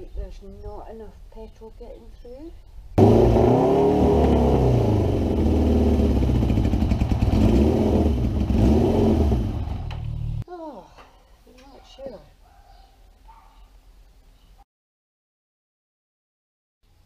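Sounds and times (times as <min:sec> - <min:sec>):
motorcycle engine revving: 0:03.0 - 0:10.4.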